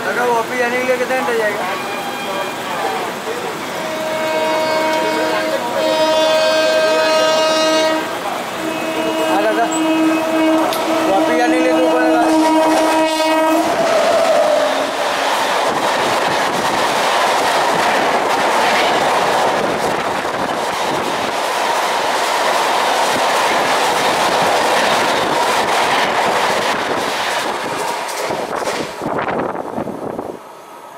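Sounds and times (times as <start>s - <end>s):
train wheels rattling on rails: 0.0s - 30.3s
locomotive horn: 1.6s - 3.0s, 3.8s - 14.9s.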